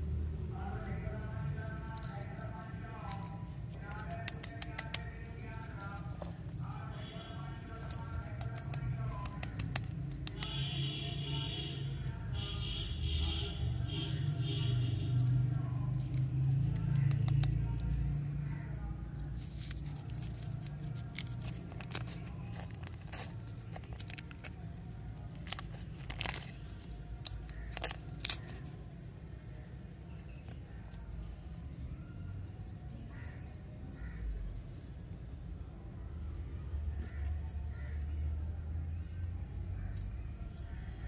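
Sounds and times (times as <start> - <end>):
wrapper crinkling and tearing: 3.1 - 6.1, 7.7 - 10.6, 19.3 - 28.8.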